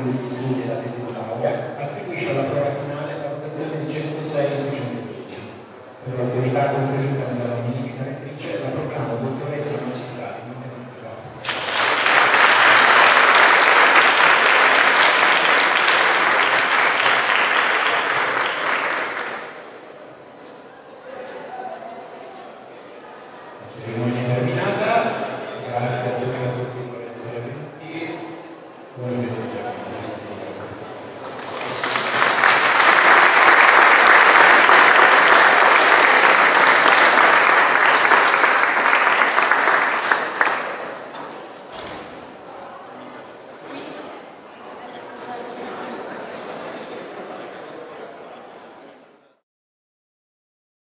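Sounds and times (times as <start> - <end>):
audience applauding: 11.4 - 19.8, 31.1 - 41.4.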